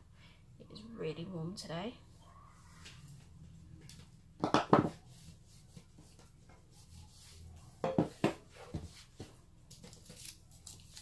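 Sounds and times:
knocks on wooden tabletop: 0:04.4 - 0:05.0, 0:07.8 - 0:08.4.

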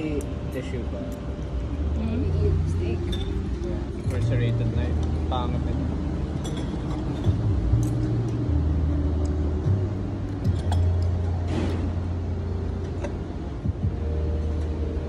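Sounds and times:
restaurant low rumble: 0:00.0 - 0:15.0
cutlery and glassware clinking: 0:06.4 - 0:08.2, 0:10.5 - 0:11.9.

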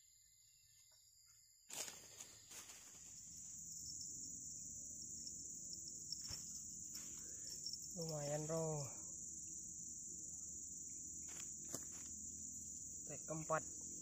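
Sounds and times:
insects chirring: 0:00.0 - 0:14.0
rustling of grass and brush: 0:01.7 - 0:03.5, 0:06.1 - 0:08.7, 0:11.2 - 0:12.2.

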